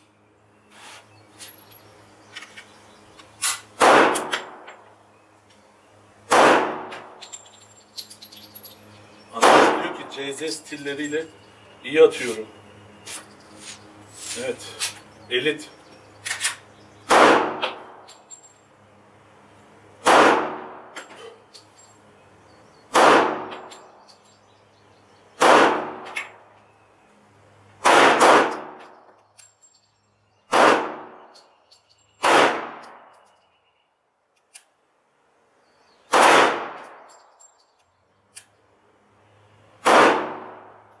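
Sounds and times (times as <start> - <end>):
pistol shots echoing: 3.8 - 4.7, 6.3 - 7.1, 9.4 - 10.2, 17.1 - 18.0, 20.0 - 20.9, 22.9 - 23.7, 25.4 - 26.2, 27.8 - 28.9, 30.5 - 31.2, 32.2 - 33.1, 36.1 - 37.0, 39.8 - 40.8.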